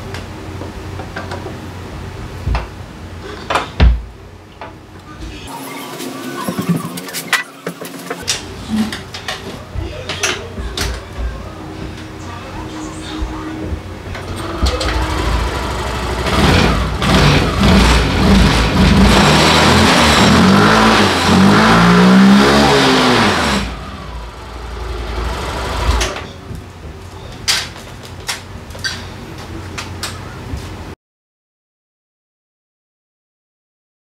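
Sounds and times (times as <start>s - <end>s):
scooter engine revving: 14.2s - 26.2s.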